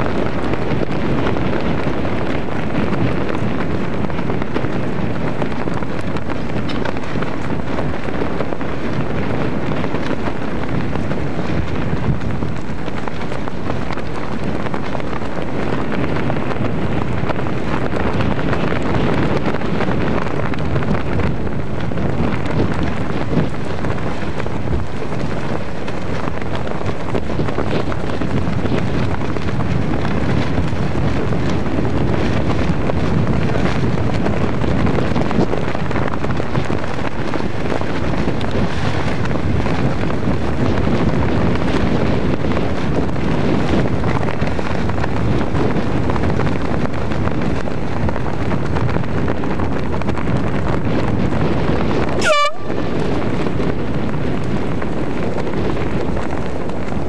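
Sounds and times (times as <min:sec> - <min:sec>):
wind noise on microphone: 0:00.0 - 0:57.0
brief high tone: 0:52.2 - 0:52.8.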